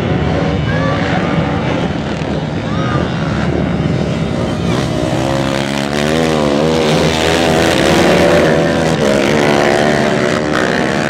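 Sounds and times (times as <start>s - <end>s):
quad bike engines revving: 0.0s - 11.0s.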